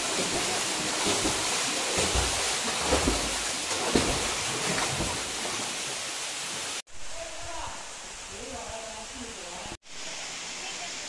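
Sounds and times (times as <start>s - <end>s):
person swimming splashing: 0.0s - 6.0s
waterfall pouring into pool: 0.0s - 7.6s.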